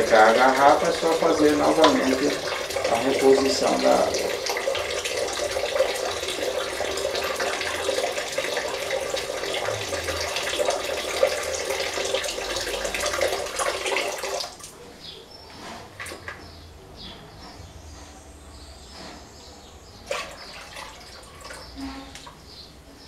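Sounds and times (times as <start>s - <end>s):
water draining from a hose: 0.0s - 14.7s, 20.1s - 22.4s.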